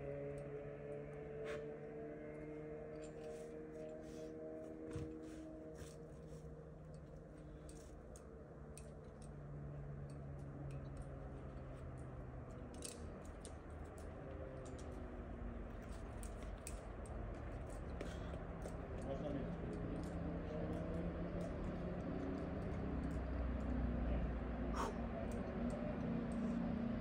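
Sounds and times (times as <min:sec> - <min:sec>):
small clicks and ticks: 0:06.9 - 0:23.9.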